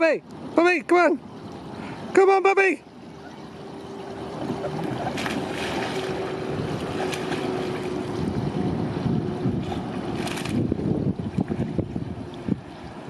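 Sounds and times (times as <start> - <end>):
pool water splashing: 0.0 - 13.0
steady hum: 0.2 - 13.0
wind noise on microphone: 4.8 - 13.0.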